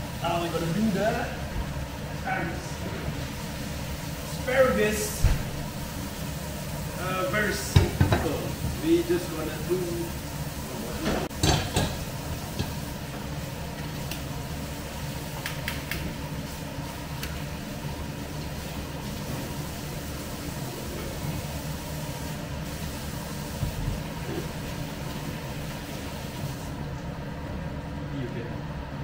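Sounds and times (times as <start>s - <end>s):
kitchen fan rumble: 0.0s - 29.0s
utensils tapping on pan: 11.3s - 12.8s.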